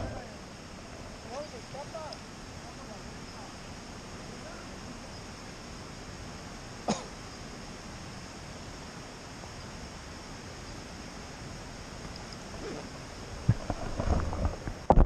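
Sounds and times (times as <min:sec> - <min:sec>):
low outdoor hiss: 0:00.0 - 0:15.0
person coughing: 0:06.9 - 0:07.1.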